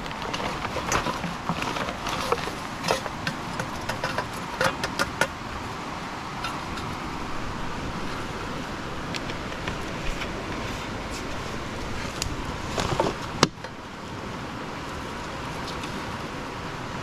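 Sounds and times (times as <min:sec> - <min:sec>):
plastic bottle and bag handling: 0:00.0 - 0:05.3, 0:09.2 - 0:13.7
background rumble: 0:00.0 - 0:17.0.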